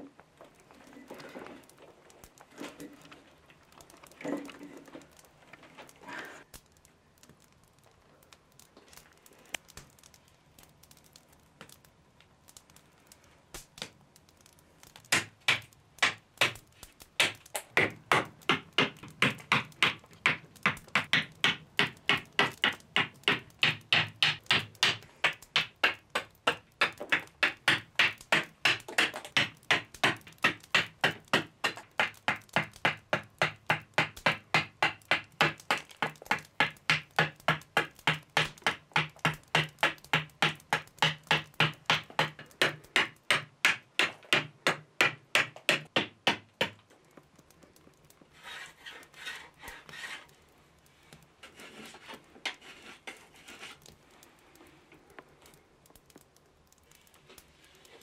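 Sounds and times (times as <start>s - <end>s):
hatchet chopping wood: 15.0s - 46.8s.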